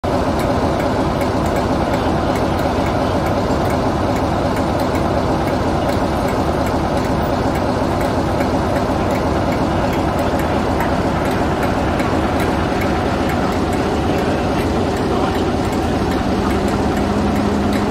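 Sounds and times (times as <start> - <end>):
diesel locomotive idling: 0.0 - 17.9.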